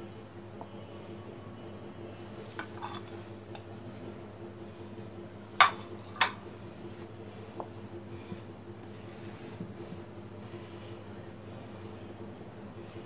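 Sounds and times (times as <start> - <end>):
faint steady hum: 0.0 - 13.0
hand mixing flour in glass bowl: 6.5 - 13.0.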